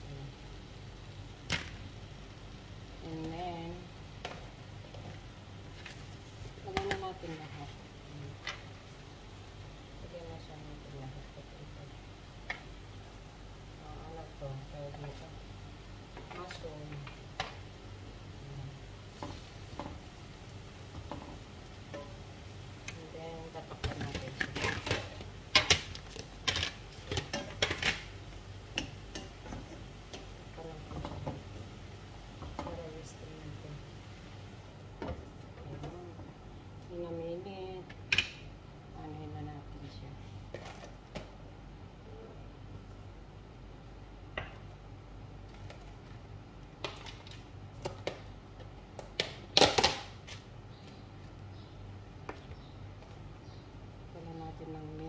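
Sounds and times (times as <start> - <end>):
wooden spoon stirring in frying pan: 4.2 - 8.9, 18.8 - 36.0.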